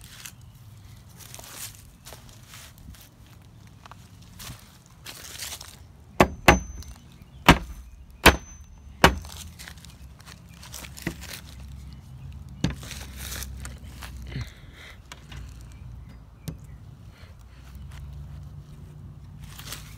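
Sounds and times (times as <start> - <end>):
hammer striking nails into wood: 6.2 - 9.4.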